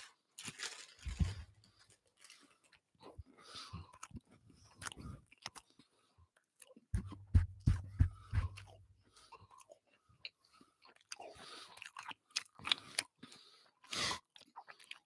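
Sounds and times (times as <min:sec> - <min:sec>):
chewing and mouth noises: 0:02.2 - 0:07.0, 0:08.6 - 0:15.0
snack crunching: 0:03.6 - 0:07.0, 0:08.6 - 0:15.0.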